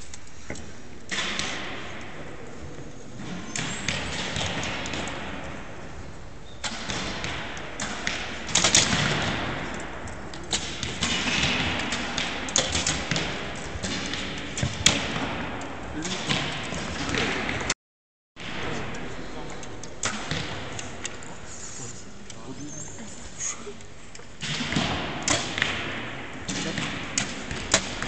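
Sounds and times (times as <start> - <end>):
arrows thumping into targets: 6.6 - 17.7, 24.4 - 28.0.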